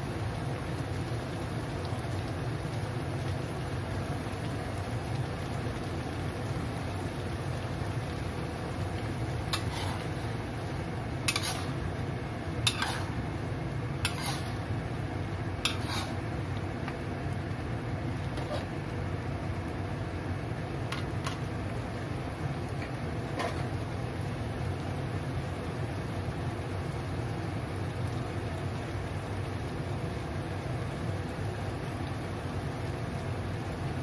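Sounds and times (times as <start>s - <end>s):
sauce simmering: 0.0s - 34.0s
spatula scraping a wok: 9.5s - 10.4s, 11.2s - 11.9s, 12.6s - 13.2s, 14.0s - 14.7s, 15.6s - 16.3s, 18.3s - 18.8s, 23.3s - 23.7s.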